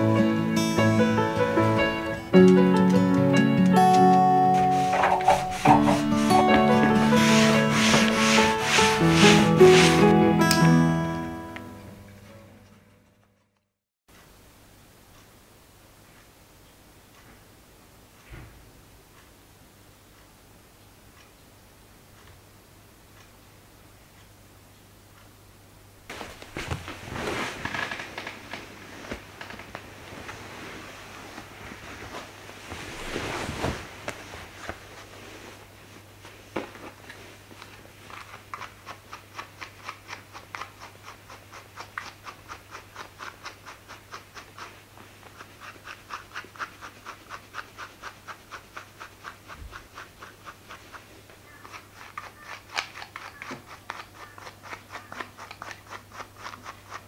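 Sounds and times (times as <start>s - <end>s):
fabric and cushions rustling: 4.2s - 10.2s, 26.1s - 38.3s
brush stroking through dog fur: 4.4s - 10.5s, 26.1s - 57.0s.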